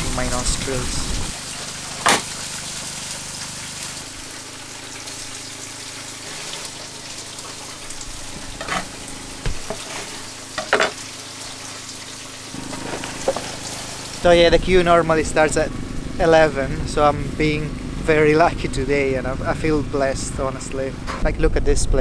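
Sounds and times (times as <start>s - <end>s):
fish sizzling on griddle: 0.7s - 14.8s
utensils knocking: 10.6s - 11.0s.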